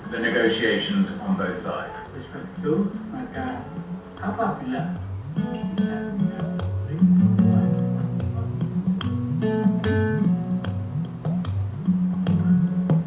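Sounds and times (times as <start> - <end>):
plucked and strummed guitar: 0.0 - 13.0
low bass line: 5.2 - 13.0.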